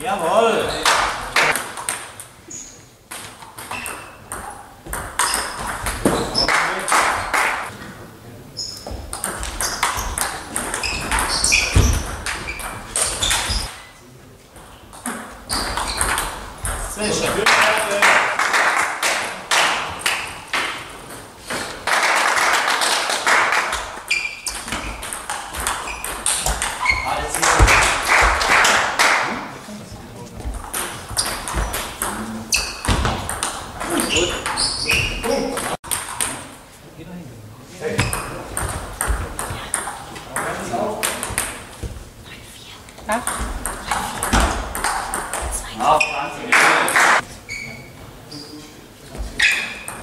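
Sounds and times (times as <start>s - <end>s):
shoes squeaking on floor: 2.4s - 3.0s, 3.6s - 6.5s, 8.5s - 14.0s, 15.4s - 17.3s, 24.0s - 27.6s, 30.4s - 35.8s, 38.0s - 38.4s, 45.4s - 46.5s, 47.2s - 50.0s
table tennis ball pinging: 3.1s - 6.5s, 8.8s - 13.6s, 14.6s - 17.0s, 24.0s - 27.0s, 30.6s - 36.6s, 43.1s - 45.6s.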